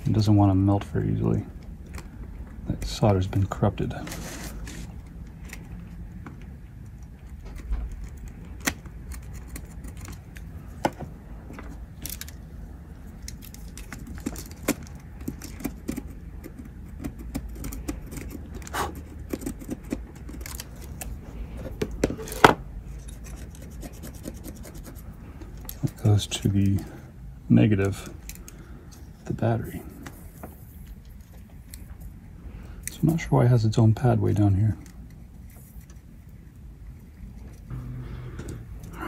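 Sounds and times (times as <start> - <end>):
low steady hum: 0.0 - 39.0
tools clicking and scraping: 3.9 - 12.5, 13.2 - 26.8.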